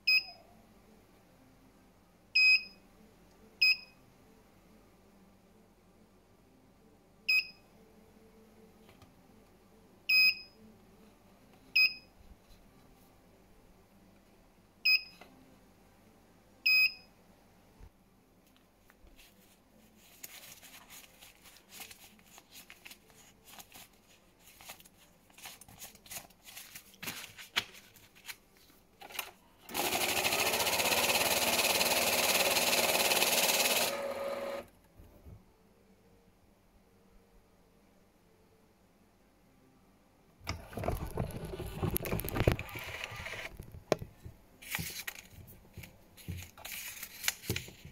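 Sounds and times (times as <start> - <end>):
banknotes rustling: 19.1 - 29.2, 44.6 - 47.9
banknote counter running: 29.7 - 34.7.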